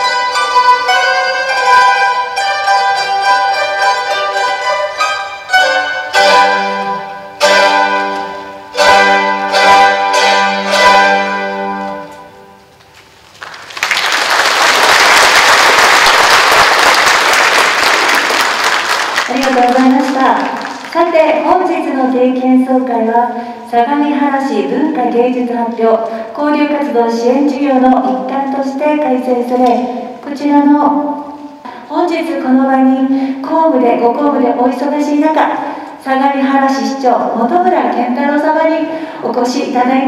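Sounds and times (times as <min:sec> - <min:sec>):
mandolin ensemble playing: 0:00.0 - 0:12.8
audience applause: 0:13.3 - 0:21.0.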